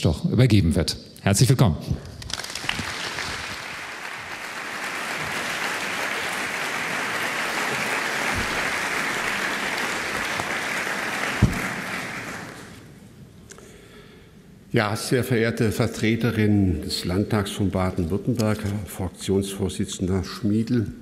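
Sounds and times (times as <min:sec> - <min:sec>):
audience applauding: 0:02.2 - 0:12.9.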